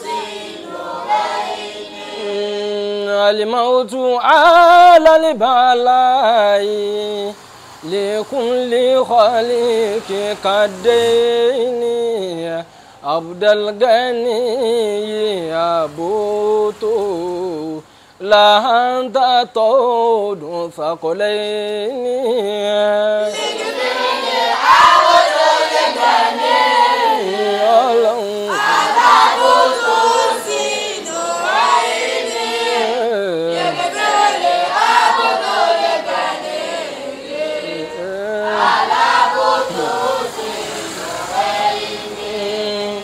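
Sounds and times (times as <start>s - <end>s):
solo child voice singing: 0.0s - 2.9s, 23.1s - 43.0s
children's choir singing in unison: 0.0s - 3.6s, 4.3s - 12.5s, 22.6s - 43.0s.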